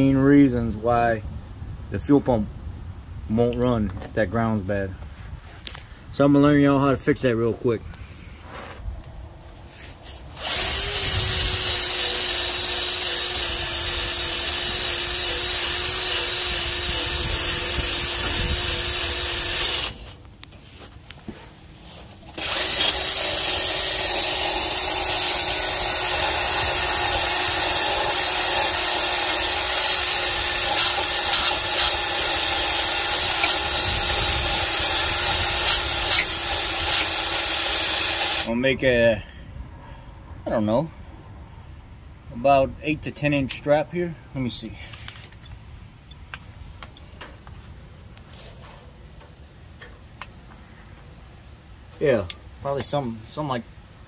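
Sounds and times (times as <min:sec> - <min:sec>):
drill wire brush whining on steel: 0:09.8 - 0:20.2, 0:21.3 - 0:38.5.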